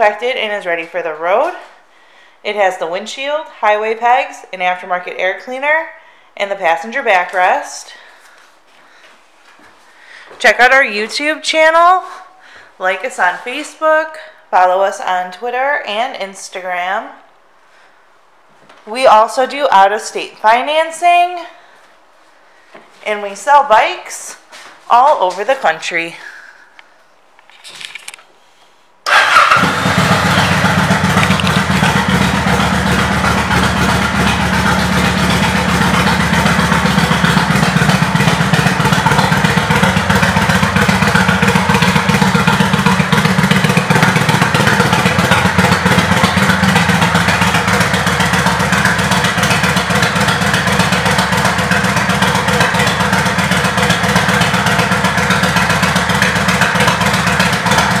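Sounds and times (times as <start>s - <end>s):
motorcycle engine starting and idling: 29.0s - 58.0s.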